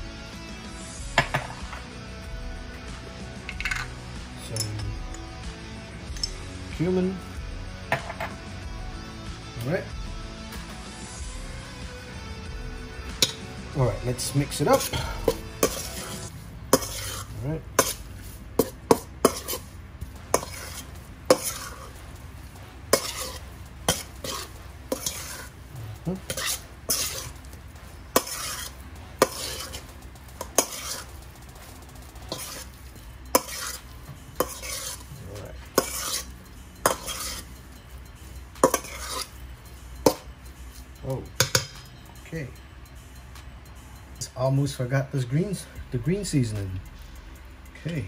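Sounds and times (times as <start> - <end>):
metal bowl clanking: 3.5 - 5.2, 13.1 - 44.8.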